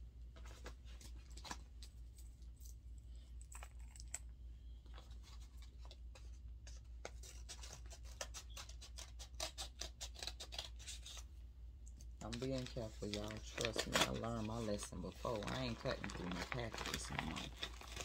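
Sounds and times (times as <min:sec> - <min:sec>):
paper mailer rustling: 0:12.3 - 0:18.0.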